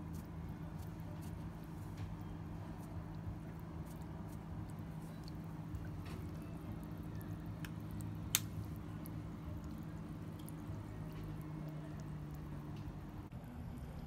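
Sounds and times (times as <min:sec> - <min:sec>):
steady low hum: 0:00.0 - 0:14.0
water dripping: 0:02.8 - 0:13.3.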